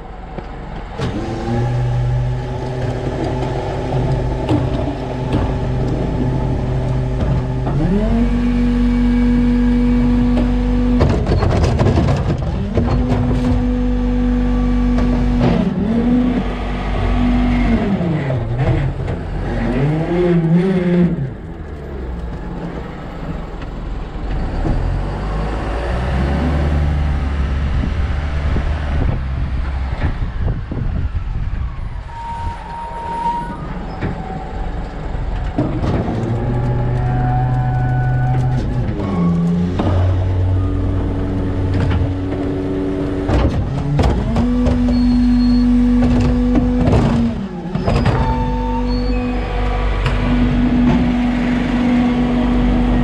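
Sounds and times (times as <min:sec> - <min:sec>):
diesel truck engine running: 0:00.0 - 0:19.6, 0:33.6 - 0:53.0
cart clanking against hopper: 0:00.4 - 0:08.1, 0:10.1 - 0:13.9, 0:33.5 - 0:53.0
truck body knocks and rattles: 0:02.5 - 0:07.9, 0:10.2 - 0:13.8, 0:35.3 - 0:36.8, 0:41.6 - 0:48.6.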